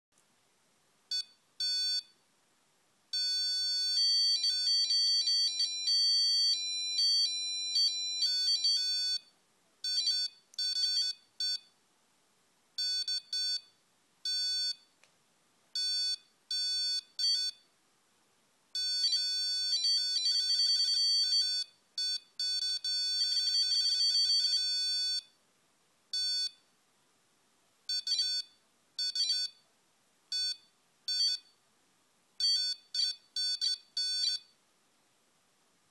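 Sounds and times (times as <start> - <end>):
piezo buzzer beeping: 3.2 - 9.3.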